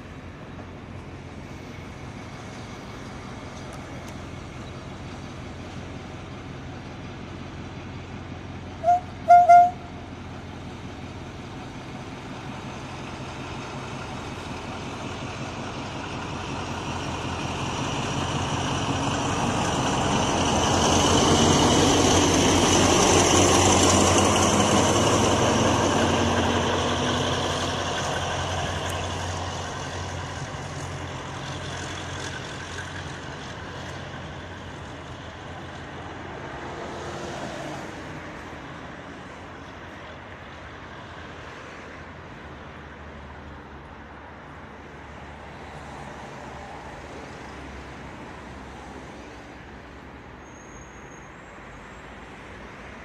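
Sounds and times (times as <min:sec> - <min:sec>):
diesel locomotive passing: 0:00.0 - 0:53.0
train horn toots: 0:08.8 - 0:09.9.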